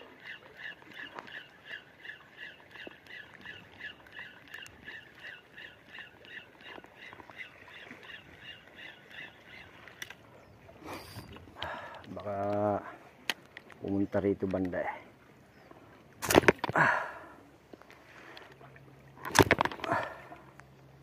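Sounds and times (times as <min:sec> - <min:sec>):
fishing reel squeaking: 0:11.0 - 0:11.4.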